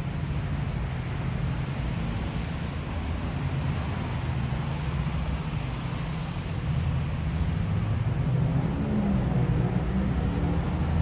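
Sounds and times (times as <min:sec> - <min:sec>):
low traffic rumble: 0:00.0 - 0:11.0.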